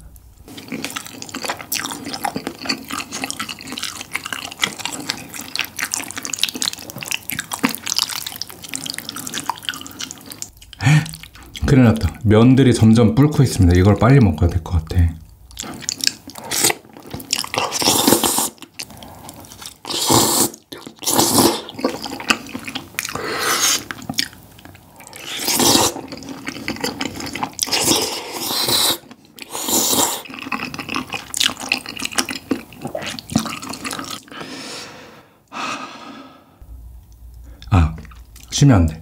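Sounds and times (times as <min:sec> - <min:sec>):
chewing: 0:00.5 - 0:12.1, 0:15.5 - 0:34.5, 0:37.1 - 0:38.5
wet noodle slurping: 0:00.6 - 0:10.5, 0:15.6 - 0:34.4.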